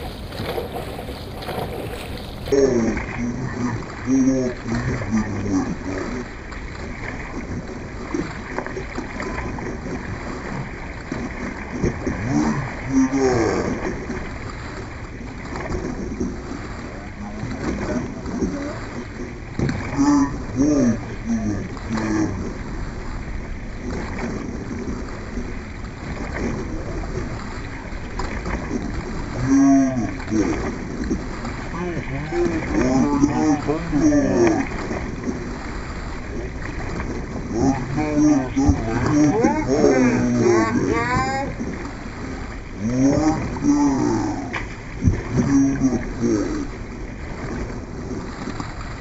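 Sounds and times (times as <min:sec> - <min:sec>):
low rumble: 0:00.0 - 0:05.8
paddles splashing in water: 0:00.0 - 0:49.0
water washing around boat: 0:00.0 - 0:49.0.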